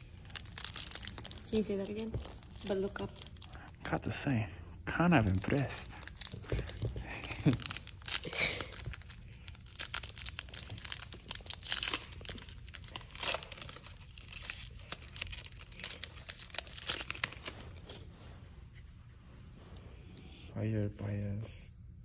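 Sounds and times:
wrapper crinkling and tearing: 0.0s - 4.0s, 5.1s - 18.1s
cards being handled: 5.2s - 19.2s.

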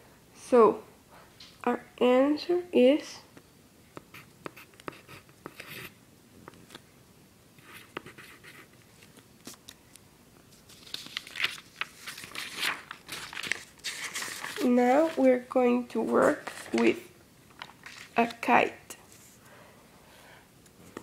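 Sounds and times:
pencil scratching on paper: 4.0s - 6.0s, 7.6s - 8.7s
paper rustling: 10.5s - 18.5s.

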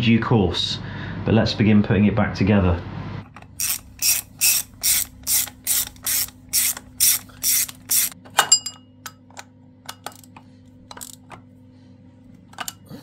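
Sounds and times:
ratchet driver strokes: 3.5s - 8.2s
metallic clink with ring: 8.5s - 8.9s.

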